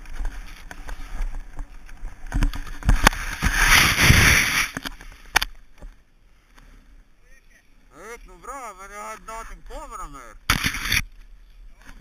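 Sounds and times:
rush of snow: 0.0 - 5.3
wind on camera: 0.0 - 5.9.

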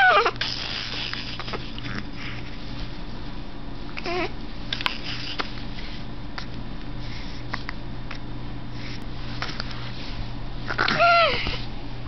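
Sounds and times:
steady low hum: 0.0 - 12.0
baby cooing: 4.0 - 4.3, 10.7 - 11.6.

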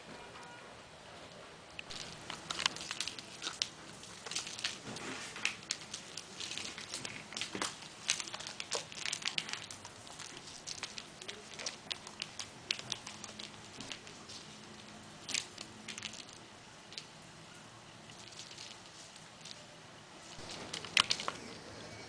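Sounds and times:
kitten pawing toys: 1.8 - 17.1.

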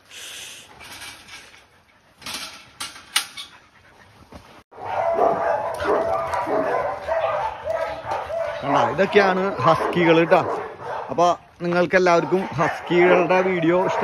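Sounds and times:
dogs whining and yipping: 1.5 - 11.1.

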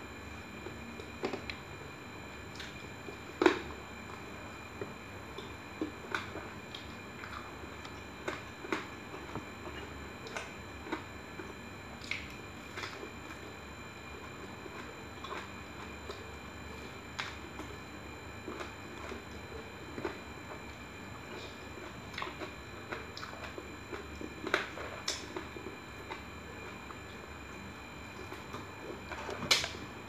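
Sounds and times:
person chewing food: 14.2 - 17.8, 21.3 - 29.8.

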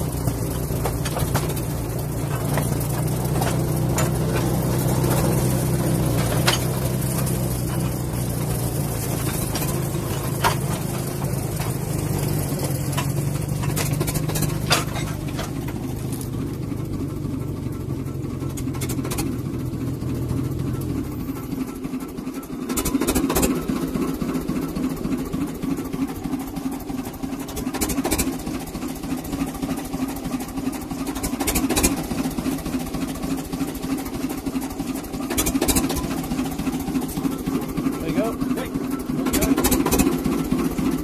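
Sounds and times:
locomotive engine running: 0.0 - 41.0
clattering knocks: 0.3 - 8.2, 9.0 - 16.2.

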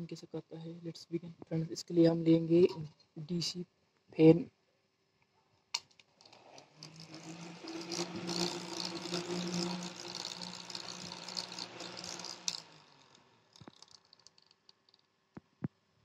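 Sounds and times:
small fan whirring: 6.2 - 15.1.

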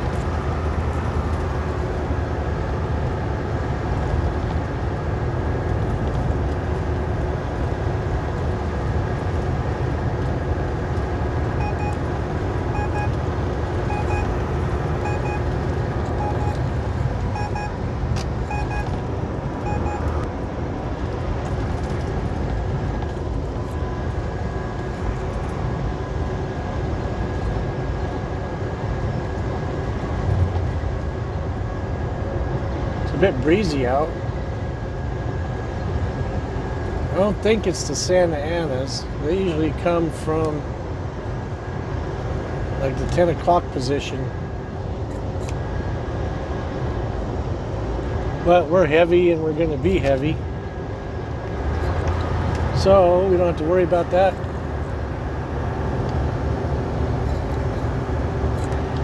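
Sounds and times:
road noise: 0.0 - 59.0
truck diesel engine drone: 0.0 - 59.0
short electronic beeps: 11.6 - 12.1, 12.7 - 13.2, 13.8 - 16.7, 17.3 - 17.8, 18.4 - 19.0, 19.6 - 20.2.

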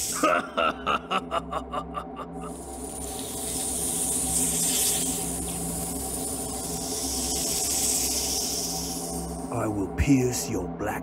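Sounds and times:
steady hiss: 0.0 - 1.3, 2.3 - 10.5
person laughing: 0.0 - 2.7.

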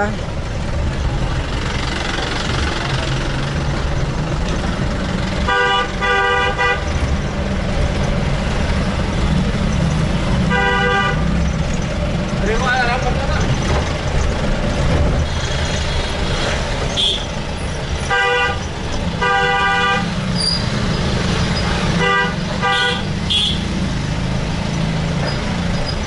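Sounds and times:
traffic engine and road noise: 0.0 - 26.0
vehicle horns honking: 5.4 - 7.0, 10.5 - 11.4, 16.9 - 17.4, 18.0 - 20.6, 21.6 - 23.8.

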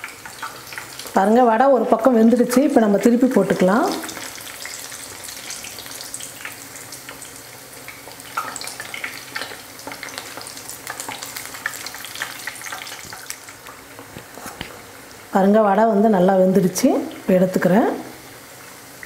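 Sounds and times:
fritters sizzling in hot oil: 0.0 - 19.0.

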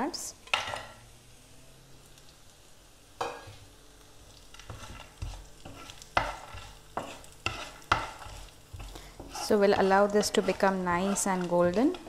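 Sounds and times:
oil sizzling in a frying pan: 0.0 - 12.0
spatula scraping a pan: 4.5 - 12.0.

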